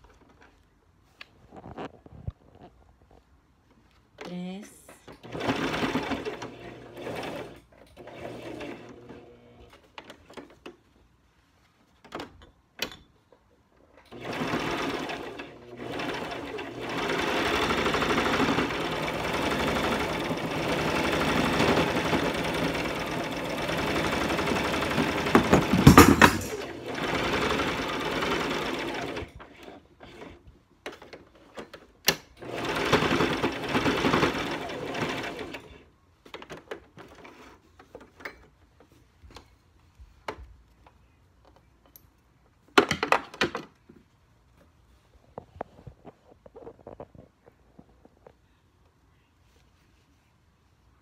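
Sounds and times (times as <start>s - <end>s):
sewing machine stitching: 5.1s - 10.6s, 14.1s - 31.8s, 32.4s - 35.8s.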